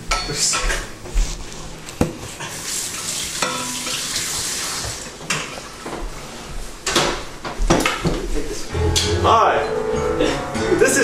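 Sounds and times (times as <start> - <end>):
food sizzling in frying pan: 2.7 - 5.1.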